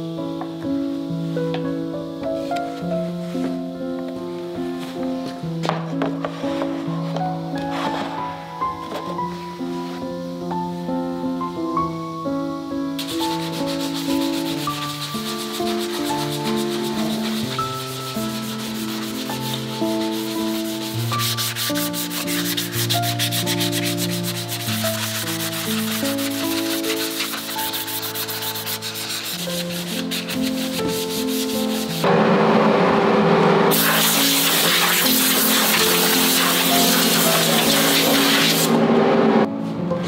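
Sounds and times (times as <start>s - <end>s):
background music: 0.0s - 40.0s
compressed air hissing: 12.2s - 32.0s, 33.7s - 38.8s
hand sanding wood: 13.0s - 32.0s, 33.7s - 38.8s.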